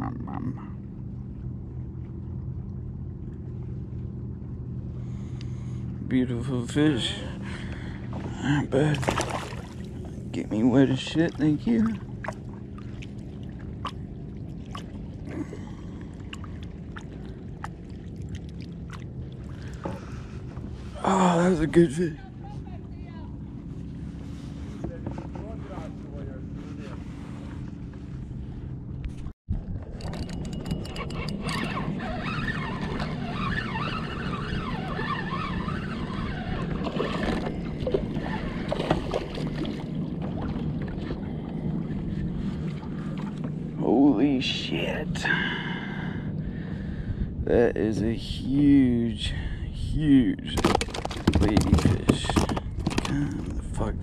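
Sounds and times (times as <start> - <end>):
low rumble of water and wind: 0.0 - 54.0
sharp knocks or splashes: 8.9 - 9.8, 50.5 - 53.1
water splashes and drips: 8.9 - 10.0, 16.2 - 19.8
spinning reel whirring: 29.9 - 37.4.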